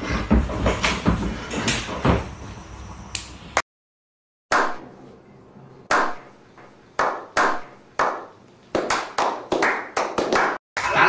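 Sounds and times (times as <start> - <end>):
men clapping hands: 7.0 - 10.6.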